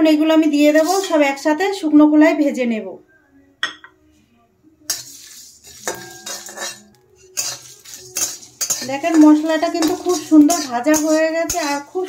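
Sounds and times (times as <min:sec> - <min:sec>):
metal spatula scraping spices: 0:00.4 - 0:01.5, 0:04.8 - 0:12.0.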